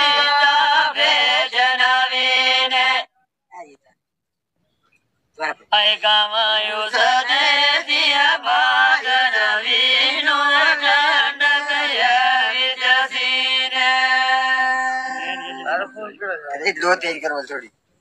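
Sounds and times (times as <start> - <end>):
men singing in chanting style: 0.0 - 3.1, 5.7 - 15.9.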